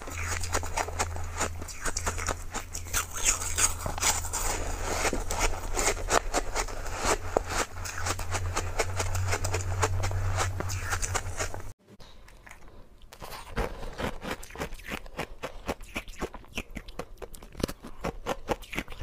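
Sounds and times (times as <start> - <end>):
steady low hum: 0.0 - 11.8
ice crunching being chewed: 0.0 - 19.0.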